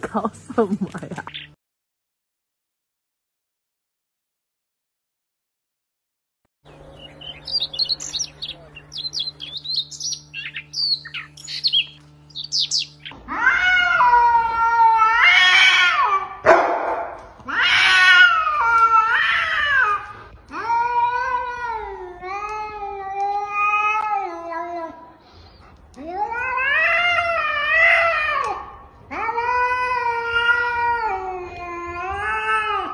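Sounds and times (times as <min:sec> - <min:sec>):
high bird chirps: 0:06.7 - 0:13.1
steady low hum: 0:06.7 - 0:15.2
cat yowling: 0:13.2 - 0:16.5, 0:17.4 - 0:25.0, 0:26.0 - 0:32.9.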